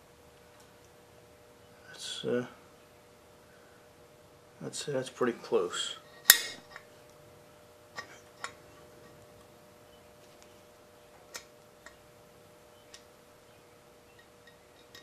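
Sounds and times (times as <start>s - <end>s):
center punch snap: 6.3s - 6.6s.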